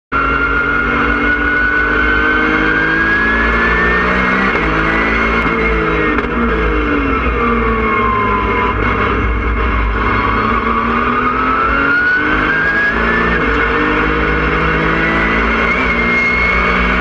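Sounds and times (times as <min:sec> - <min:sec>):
race car engine accelerating: 0:00.2 - 0:17.0
high whine: 0:04.4 - 0:17.0.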